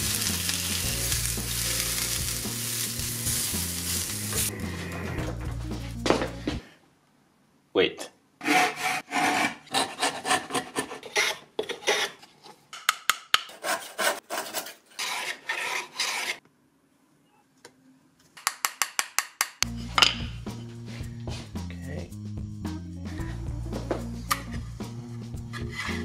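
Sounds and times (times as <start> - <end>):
hand plane shaving wood: 8.4 - 12.2, 13.5 - 16.4.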